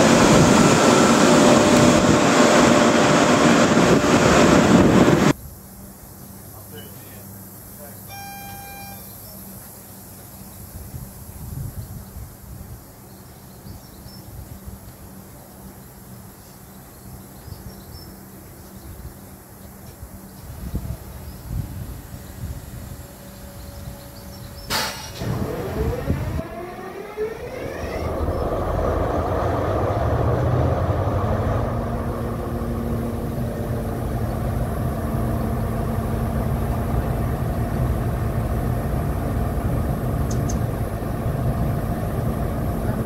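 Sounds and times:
diesel engine running: 0:00.0 - 0:05.3, 0:24.7 - 0:43.0
rising whine: 0:00.0 - 0:05.4, 0:25.1 - 0:43.0
sharp click: 0:40.3 - 0:40.6.

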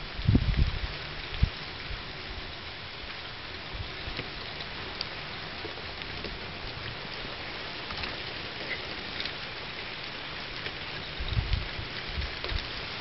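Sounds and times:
freezing rain pattering on wood: 0:00.0 - 0:13.0.

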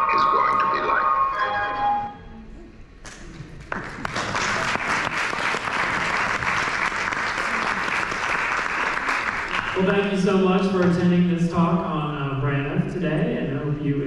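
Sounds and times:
audience applauding: 0:03.5 - 0:10.1.

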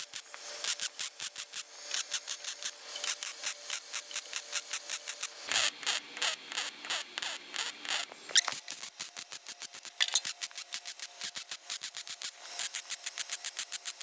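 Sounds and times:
welding arc crackling: 0:00.0 - 0:14.0.

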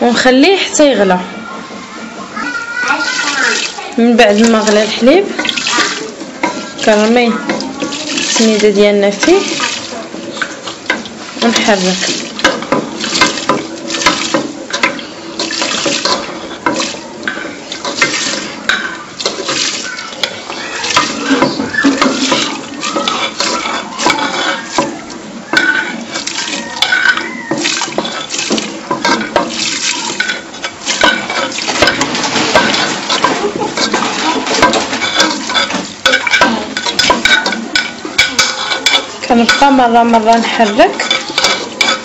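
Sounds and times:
liquid swishing: 0:03.0 - 0:39.3
spoon scraping and knocking pot: 0:04.4 - 0:42.0.

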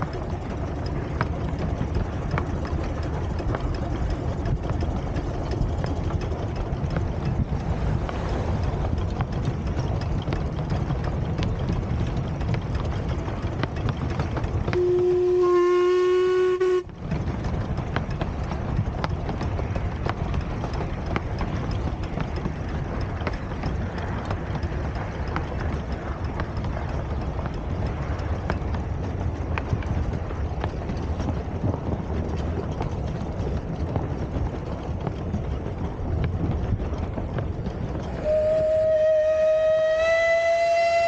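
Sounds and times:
train running noise: 0:00.0 - 0:41.0
steam locomotive whistle: 0:14.7 - 0:16.9, 0:38.2 - 0:41.0.

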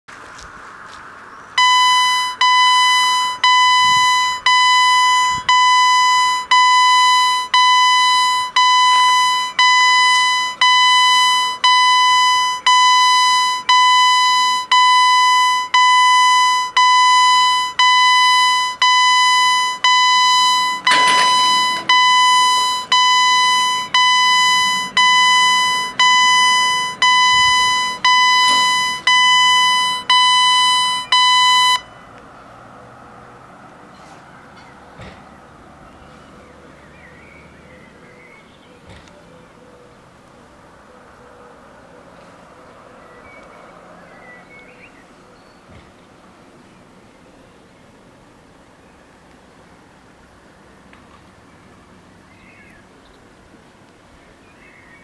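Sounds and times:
level crossing bell ringing: 0:17.3 - 0:31.9.

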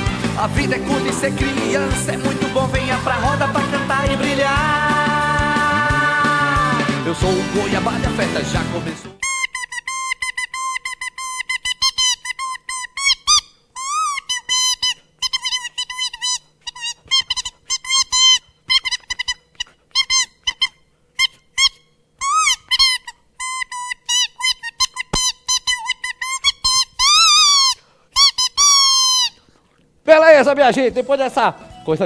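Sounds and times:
squeaky buzzing voice device: 0:08.5 - 0:29.4.

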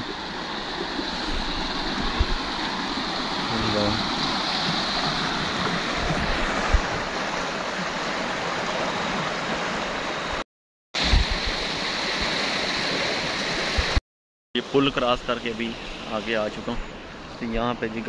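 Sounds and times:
stream rushing over stones: 0:00.0 - 0:10.4, 0:11.0 - 0:14.0.

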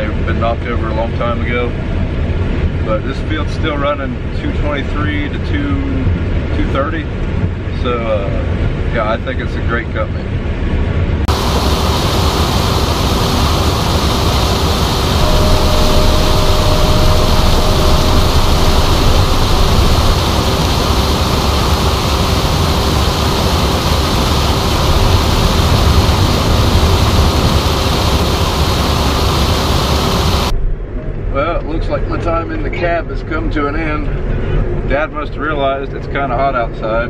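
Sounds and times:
low rumble: 0:10.4 - 0:36.0
combine harvester running: 0:11.3 - 0:31.3
faint steady hum: 0:11.3 - 0:33.1.

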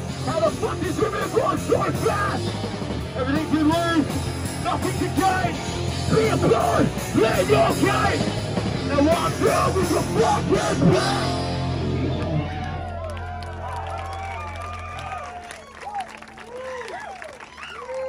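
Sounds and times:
punk band playing live: 0:00.0 - 0:12.9
person yelling vocals: 0:00.3 - 0:02.4.

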